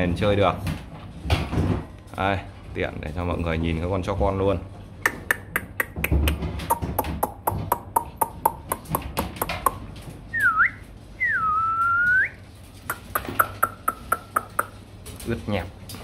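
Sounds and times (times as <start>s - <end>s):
person whistling: 10.4s - 12.4s.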